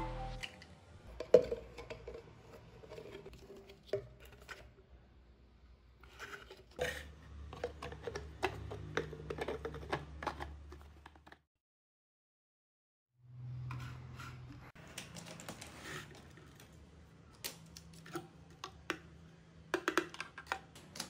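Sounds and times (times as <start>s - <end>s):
plastic parts clicking and scraping: 0.4s - 4.8s, 6.0s - 11.4s, 13.7s - 19.1s, 19.8s - 21.0s.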